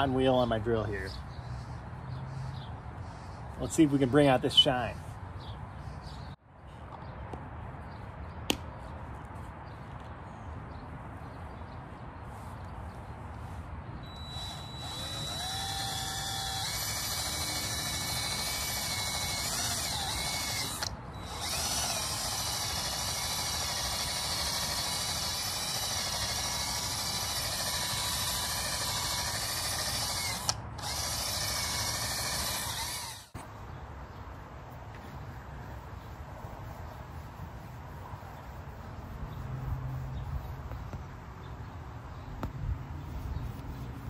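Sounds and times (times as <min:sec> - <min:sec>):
cordless drill motor whine: 0:14.0 - 0:33.4.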